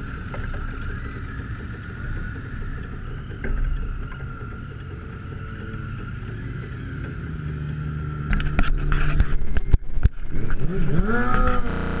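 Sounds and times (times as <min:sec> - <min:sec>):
steady low hum: 0:11.5 - 0:12.0
wavering rubbing sound: 0:11.5 - 0:12.0.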